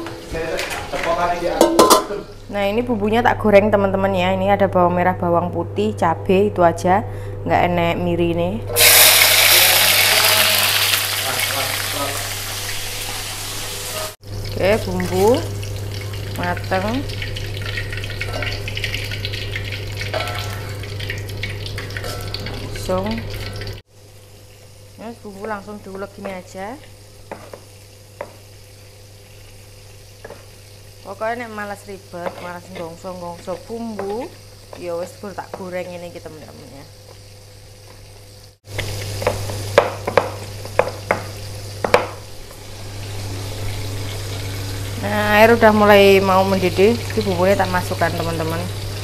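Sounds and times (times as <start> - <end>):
utensil knocking on cookware: 0.0 - 2.2, 27.3 - 28.4, 32.2 - 36.6, 39.2 - 42.2
food sizzling in hot oil: 0.0 - 2.7, 8.7 - 49.0.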